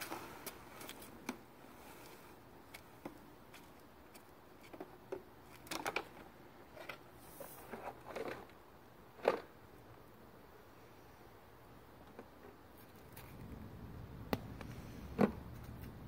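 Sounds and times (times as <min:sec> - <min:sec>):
plastic toys knocking and clattering: 0:04.7 - 0:07.0, 0:07.6 - 0:08.6, 0:09.2 - 0:09.6.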